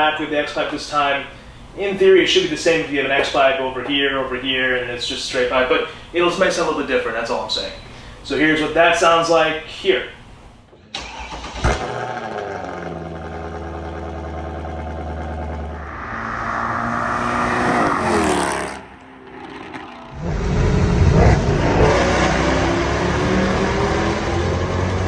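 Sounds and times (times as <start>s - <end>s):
car engine revving: 11.8s - 25.0s.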